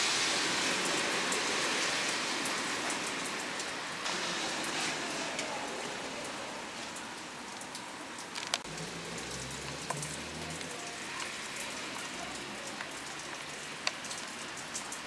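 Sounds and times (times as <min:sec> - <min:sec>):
rain falling: 0:00.0 - 0:15.0
drips ticking: 0:06.9 - 0:15.0.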